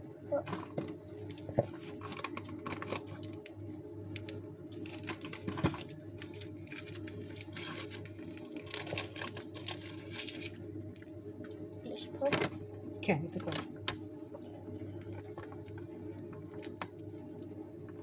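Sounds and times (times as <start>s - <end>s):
steady low hum: 0.0s - 18.0s
paper sachet crinkling: 0.5s - 11.0s, 15.0s - 17.5s.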